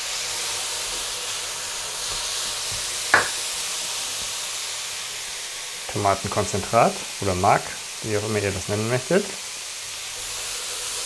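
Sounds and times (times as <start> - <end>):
tomatoes sizzling in oil: 0.0 - 11.0
sharp knock: 3.2 - 3.4.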